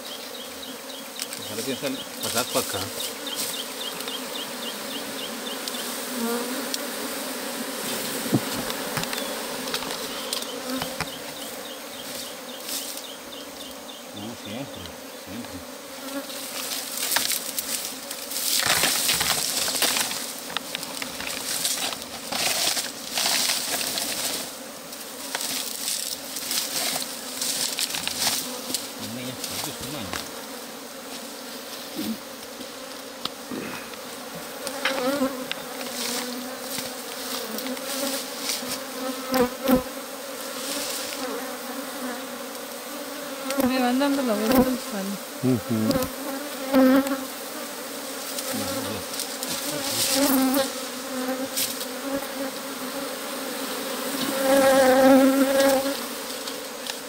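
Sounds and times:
swarm of bees buzzing: 0:00.0 - 0:57.0.

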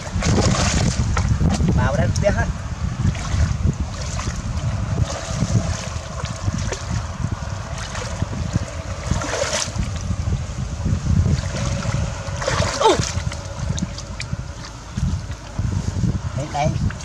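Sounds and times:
hands splashing in muddy water: 0:00.0 - 0:01.3, 0:09.0 - 0:09.9, 0:11.3 - 0:15.6
wind rumble on microphone: 0:00.0 - 0:17.0.

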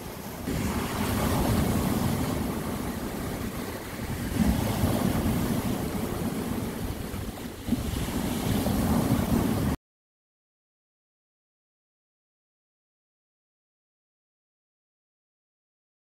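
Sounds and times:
sea waves breaking on pebbles: 0:00.0 - 0:09.8.

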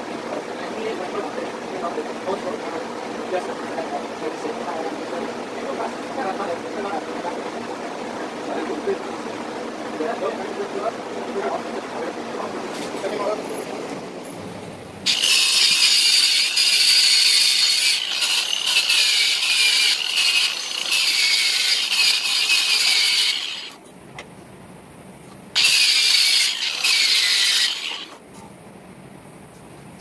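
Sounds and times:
angle grinder grinding steel: 0:15.0 - 0:23.8, 0:25.6 - 0:28.2.

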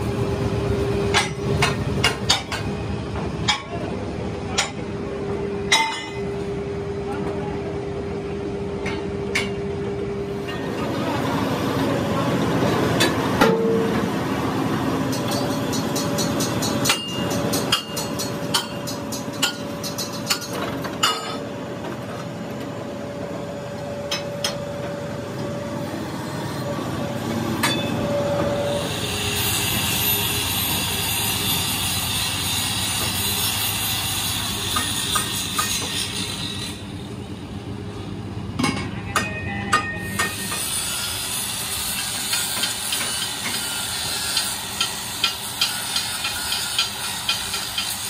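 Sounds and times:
high hiss of metal finishing: 0:28.7 - 0:34.5.

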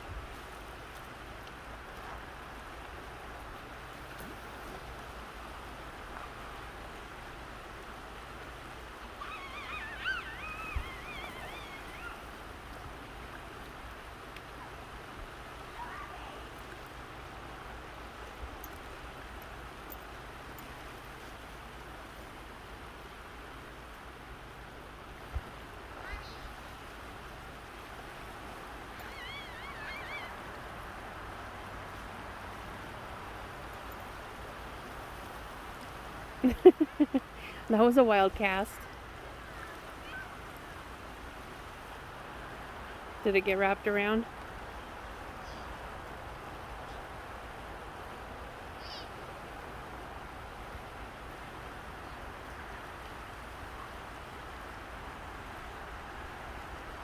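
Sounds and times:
creek flowing over rocks: 0:00.0 - 0:57.0
high wavering call: 0:09.2 - 0:12.2, 0:29.0 - 0:30.4
warbling whistle: 0:09.2 - 0:12.2, 0:29.0 - 0:30.3.

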